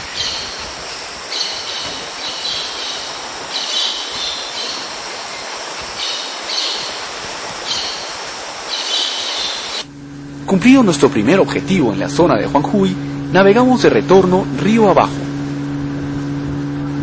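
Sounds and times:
high shrill calls: 0:00.0 - 0:09.9
waterfall rushing: 0:00.0 - 0:09.9.

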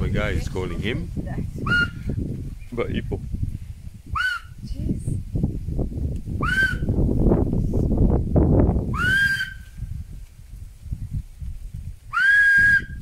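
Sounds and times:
low rumbling noise: 0:00.0 - 0:13.0
man whistling: 0:01.7 - 0:02.0, 0:06.4 - 0:06.9, 0:09.0 - 0:09.6, 0:12.1 - 0:13.0.

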